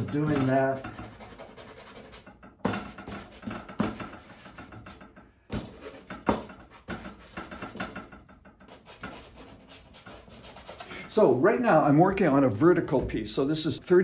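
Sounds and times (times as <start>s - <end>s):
pastel scratching on paper: 0.7s - 2.3s, 8.7s - 10.9s.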